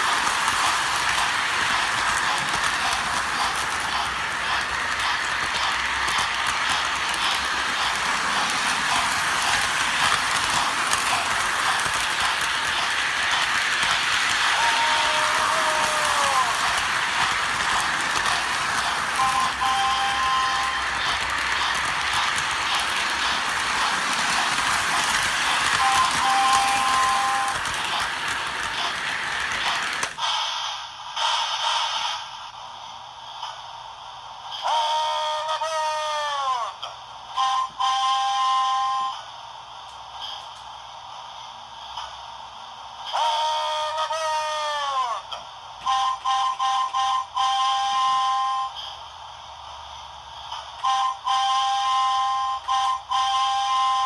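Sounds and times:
short noisy bursts: 0.0s - 32.5s
model train whir and rattle: 0.0s - 54.0s.

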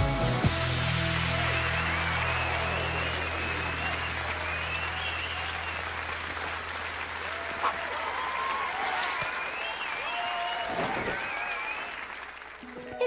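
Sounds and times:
music with low bass: 0.0s - 3.9s
audience applauding and cheering: 0.0s - 13.0s
shouts and whistles: 1.3s - 6.0s, 7.3s - 12.2s.

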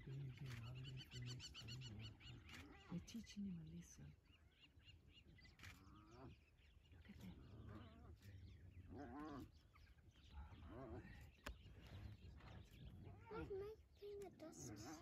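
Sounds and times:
wild dogs calling: 4.7s - 15.0s
hyenas calling: 5.2s - 13.6s.

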